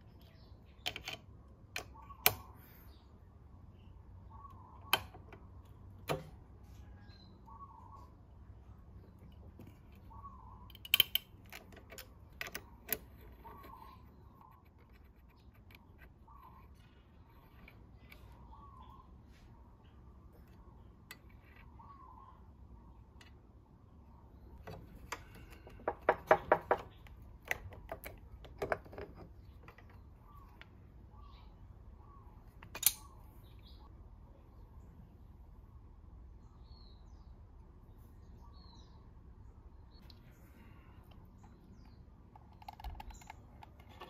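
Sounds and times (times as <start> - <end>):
metal parts clinking and clanking: 32.6 - 33.2
sharp click: 32.6 - 33.3.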